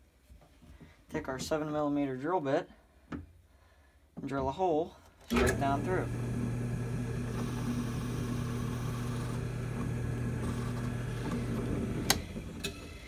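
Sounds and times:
drill bit boring through wood: 5.3 - 13.0
drill press humming: 5.3 - 13.0.

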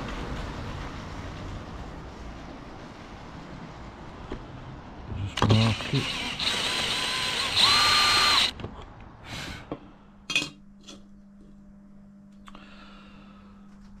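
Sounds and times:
cordless drill whining: 5.3 - 8.6.

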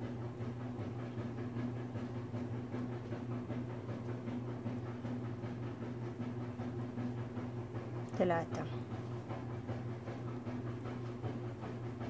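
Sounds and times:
appliance motor hum: 0.0 - 12.0.

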